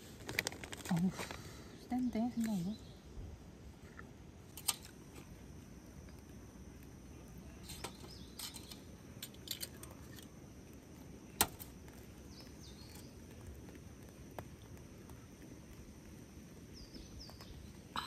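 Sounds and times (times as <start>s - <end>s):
faint bird chirp: 7.4s - 8.8s, 12.2s - 13.2s, 16.7s - 18.0s.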